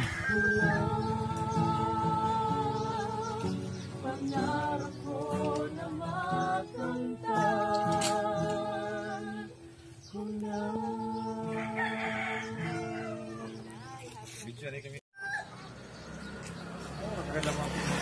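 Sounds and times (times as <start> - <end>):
voices singing: 0.0 - 14.0
acoustic guitar: 0.0 - 14.4.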